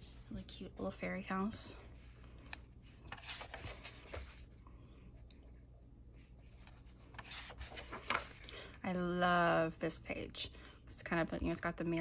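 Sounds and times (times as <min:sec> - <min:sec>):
paper page rustling: 0:01.8 - 0:04.6, 0:06.4 - 0:08.7.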